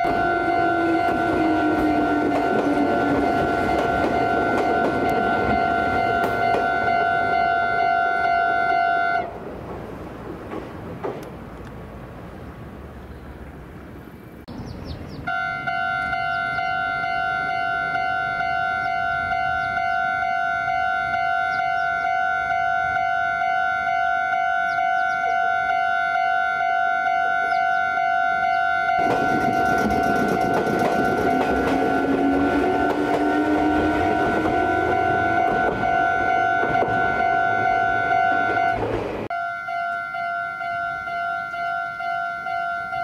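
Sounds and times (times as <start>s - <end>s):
level crossing warning bell: 0.0s - 9.3s, 15.3s - 43.0s
train wheels rumbling on rails: 0.0s - 12.2s, 28.6s - 39.3s
train hum: 0.0s - 43.0s.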